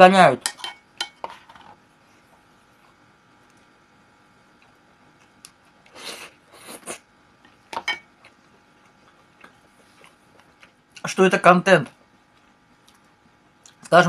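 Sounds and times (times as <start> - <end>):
eating smacks and scrapes: 8.2 - 11.0.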